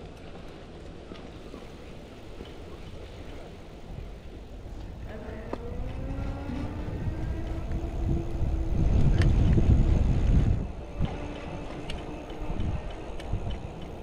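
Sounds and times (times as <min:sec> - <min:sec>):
wind rumble on microphone: 0:00.0 - 0:14.0
small clicks: 0:10.9 - 0:14.0.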